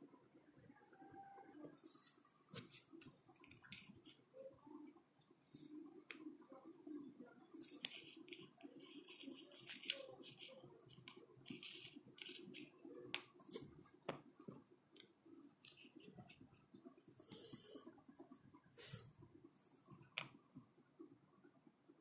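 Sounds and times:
fingers rolling modelling clay: 7.5 - 17.8.

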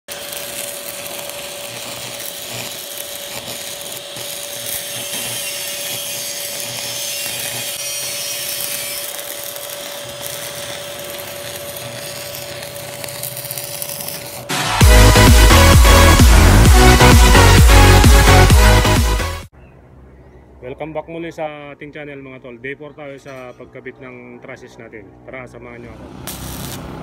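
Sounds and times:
welding arc crackling and sizzling: 0.1 - 19.5, 26.0 - 27.0.

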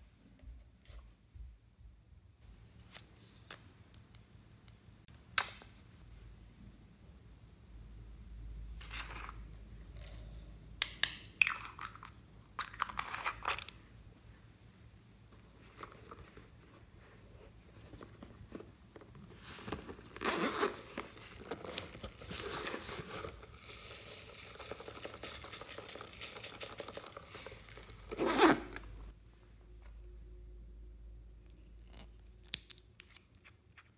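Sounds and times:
crackling and rustling handling: 15.3 - 29.2.

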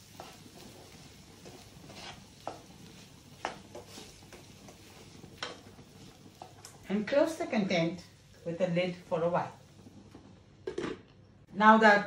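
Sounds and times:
spatula scraping metal pan: 0.0 - 5.5.

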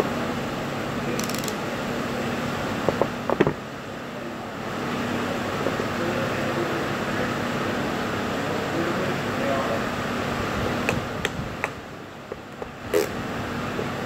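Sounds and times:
steady background hum: 0.0 - 14.0
ratcheting crimper clicking: 1.2 - 1.6.

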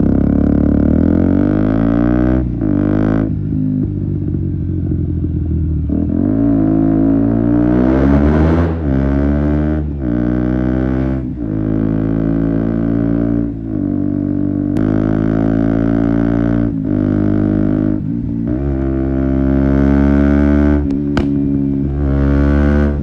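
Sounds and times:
motorcycle engine running: 0.0 - 23.0.

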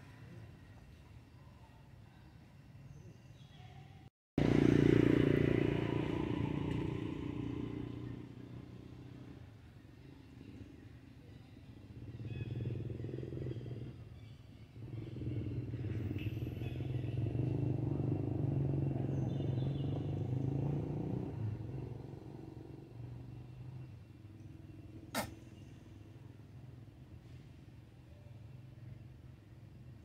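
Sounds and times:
vehicle engine passing by: 4.4 - 9.7, 11.9 - 25.8.

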